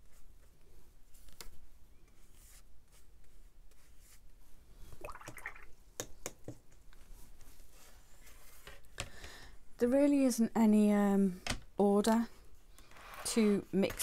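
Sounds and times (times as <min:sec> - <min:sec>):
brush on paper: 0:02.0 - 0:04.5
wet paintbrush dabbing and swishing: 0:02.1 - 0:05.7.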